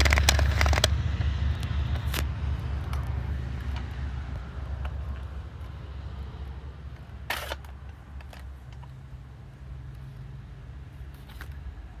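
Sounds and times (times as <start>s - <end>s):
plastic toy clicks: 0.0s - 0.9s
plastic rattle: 0.0s - 1.0s
low steady rumble: 0.0s - 12.0s.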